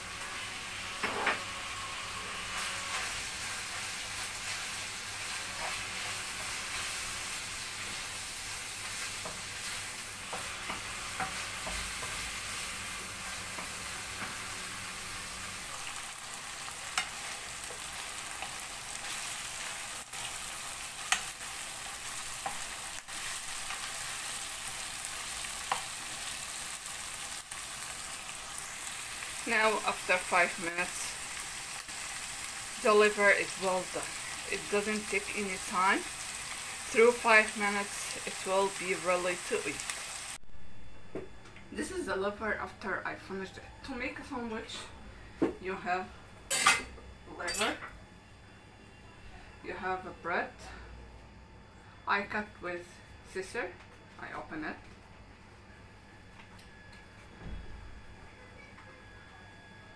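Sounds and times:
food sizzling in frying pan: 0.0s - 40.4s.

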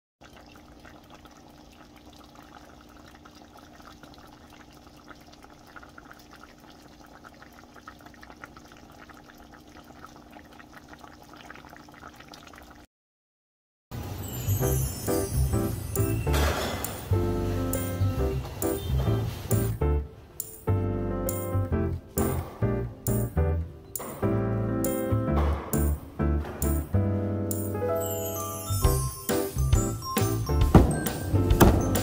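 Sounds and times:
stew bubbling in a pot: 0.2s - 12.9s.

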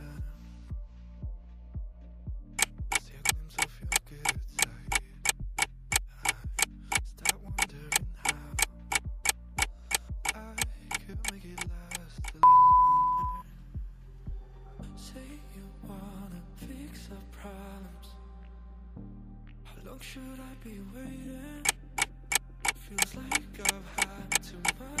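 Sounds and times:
clock ticking: 2.6s - 13.4s, 21.6s - 25.0s
loud steady beep: 12.4s - 13.4s.

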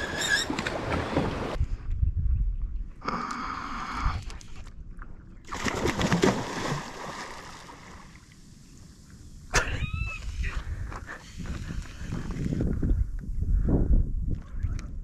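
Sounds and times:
brief squeak: 0.0s - 0.7s
fish splashing in water: 5.5s - 8.0s.

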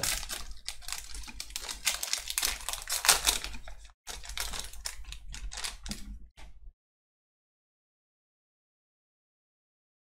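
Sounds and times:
foil wrapper crinkling: 0.0s - 6.2s.

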